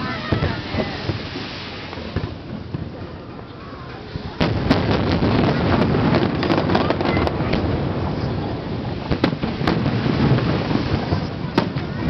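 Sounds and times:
firework bangs: 0.0 - 12.0
firework cracks and pops: 4.4 - 12.0.

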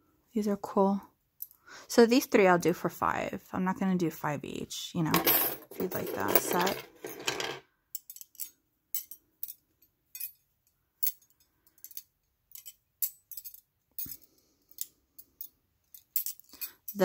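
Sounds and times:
metal bangles clinking: 5.2 - 17.0.

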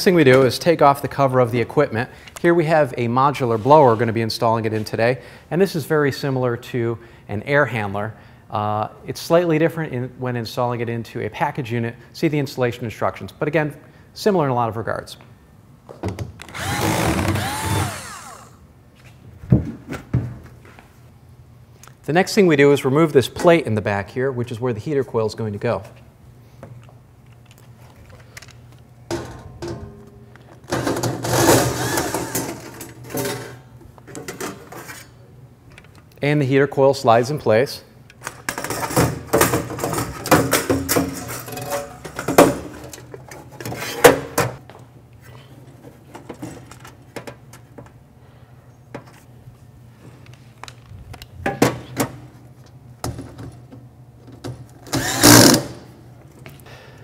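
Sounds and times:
cordless drill motor whirring: 16.4 - 18.6, 31.7 - 32.3, 55.0 - 55.6.

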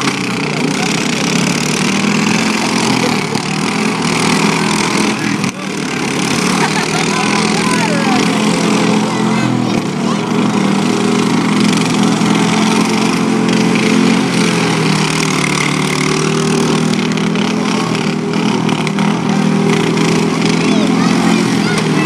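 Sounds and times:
lawn mower engines running: 0.0 - 22.0.

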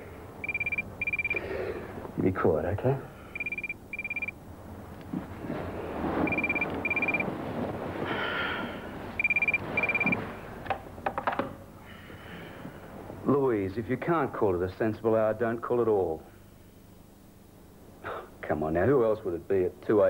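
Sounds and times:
telephone ringing: 0.4 - 1.5, 3.3 - 4.4, 6.2 - 7.3, 9.2 - 10.2.

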